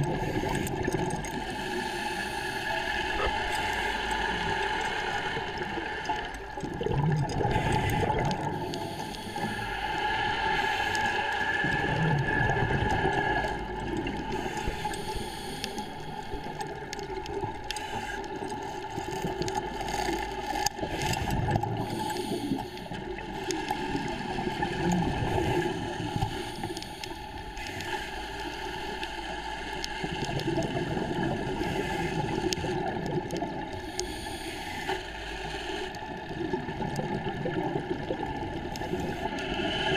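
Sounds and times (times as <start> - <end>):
bubbles gurgling: 0.0 - 1.6, 3.0 - 8.8, 11.6 - 14.9, 18.4 - 22.0, 30.1 - 33.8, 36.1 - 39.9
scuba regulator breathing: 0.0 - 6.3, 7.4 - 19.5, 20.8 - 30.4, 31.4 - 36.3, 38.7 - 39.9
steady droning hum: 0.0 - 36.8.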